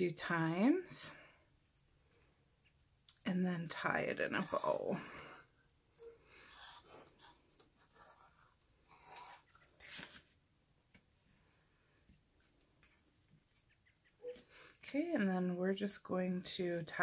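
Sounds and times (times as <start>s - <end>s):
cardstock rustling: 7.0s - 10.4s.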